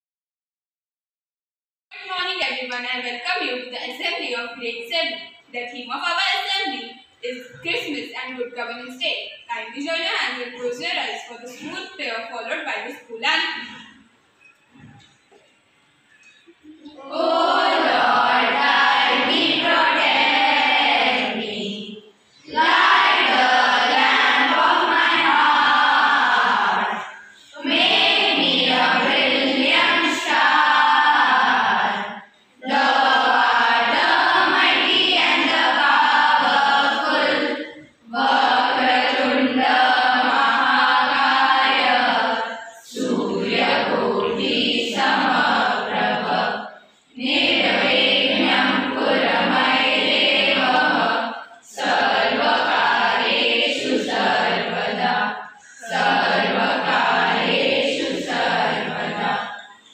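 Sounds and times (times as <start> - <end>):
children singing a prayer: 16.6 - 59.9.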